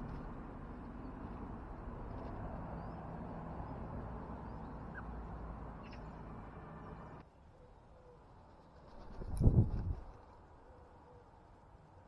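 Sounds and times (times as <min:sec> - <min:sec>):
outdoor background noise: 0:00.0 - 0:12.0
faint bird calls: 0:04.4 - 0:05.2, 0:05.8 - 0:06.2.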